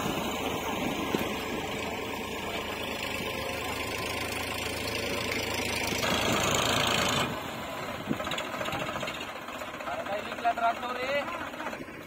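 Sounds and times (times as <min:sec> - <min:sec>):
tractor diesel engine knocking: 0:00.0 - 0:12.0.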